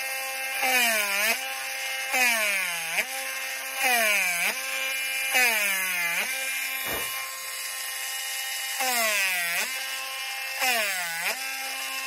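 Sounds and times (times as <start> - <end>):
rotary tool whining: 6.8 - 7.2.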